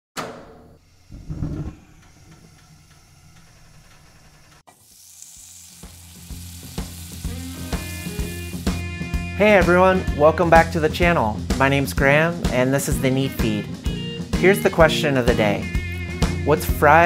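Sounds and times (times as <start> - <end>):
steady hiss: 0.8 - 8.7
music with regular beat: 7.3 - 11.8.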